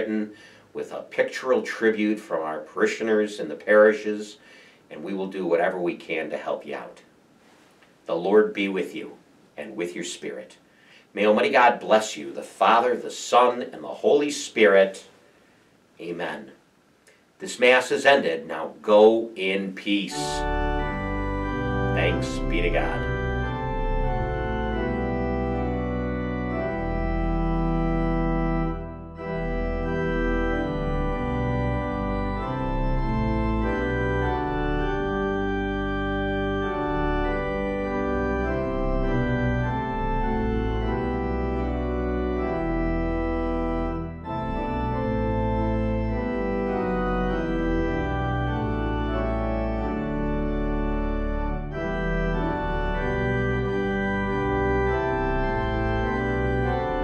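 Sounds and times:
organ playing held chords: 0:17.4 - 0:57.0.

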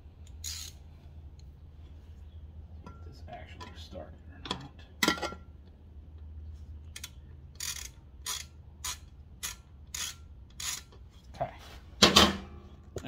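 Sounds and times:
ratchet wrench clicking: 0:00.2 - 0:00.8, 0:06.9 - 0:11.0.

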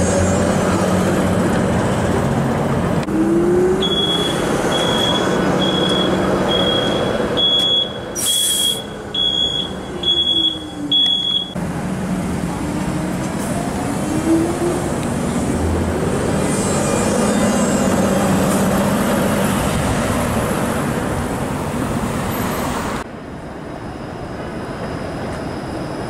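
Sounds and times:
streetcar rumble and whine: 0:00.0 - 0:26.0
high electronic beep: 0:03.8 - 0:11.6.

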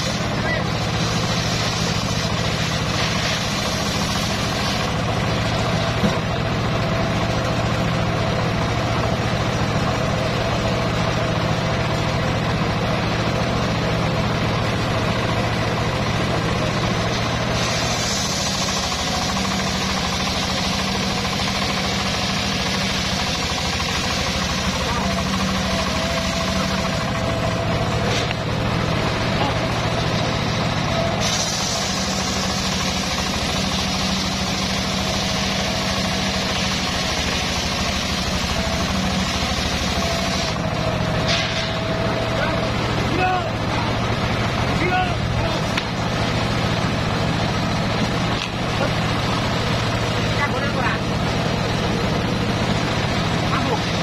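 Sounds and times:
saw blade cutting log: 0:00.0 - 0:06.4, 0:16.3 - 0:42.8
stationary engine drone: 0:00.0 - 0:54.0.

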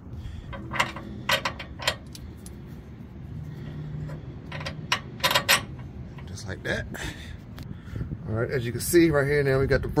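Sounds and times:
bolts clinking against metal bracket: 0:00.4 - 0:02.6, 0:04.0 - 0:06.5.

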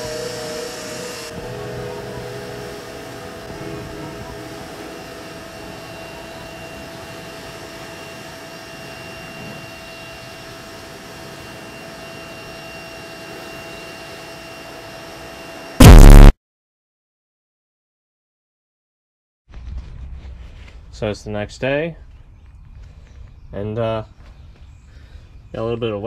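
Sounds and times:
pressure washer spraying water: 0:00.0 - 0:08.3.

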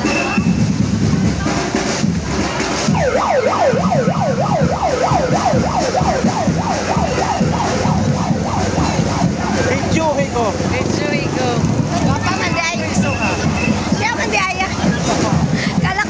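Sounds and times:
street traffic noise: 0:00.0 - 0:16.0
electronic siren yelping: 0:02.9 - 0:14.1.

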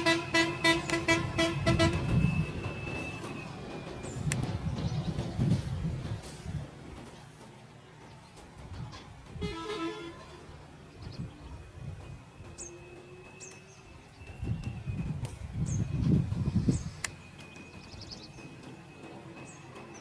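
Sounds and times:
bird chirps: 0:12.4 - 0:20.0.

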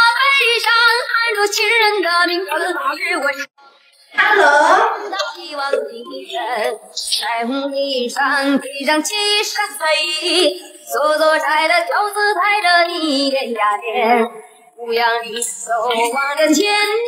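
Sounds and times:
woman singing pop melody: 0:04.2 - 0:17.0.

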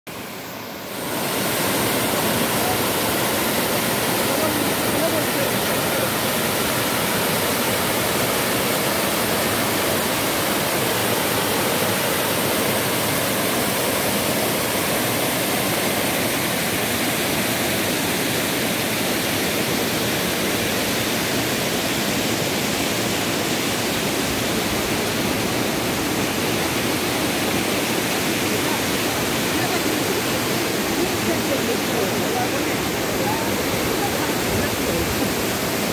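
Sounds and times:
waterfall roaring: 0:00.1 - 0:35.9.

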